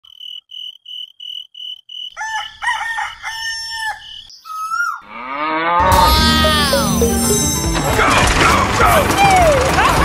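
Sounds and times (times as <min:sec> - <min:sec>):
rooster crowing: 0:02.2 - 0:04.3.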